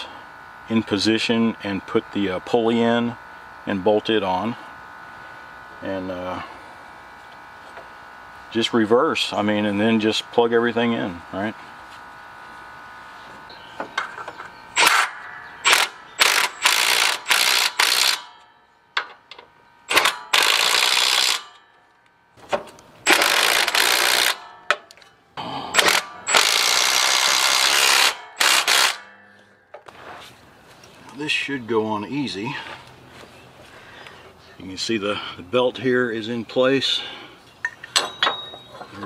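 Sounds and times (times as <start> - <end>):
ratcheting tool bursts: 14.8 - 18.4, 19.9 - 21.6, 23.0 - 24.9, 25.7 - 29.2.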